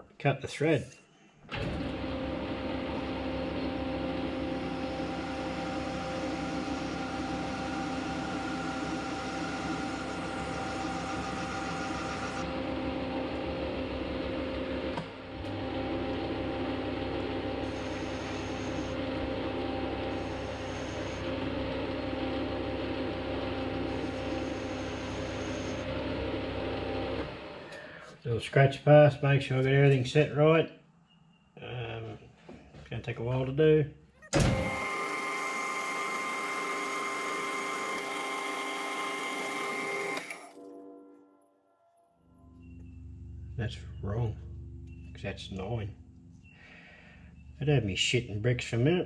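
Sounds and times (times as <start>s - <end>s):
metal lathe whining: 1.5s - 27.8s, 34.4s - 40.6s.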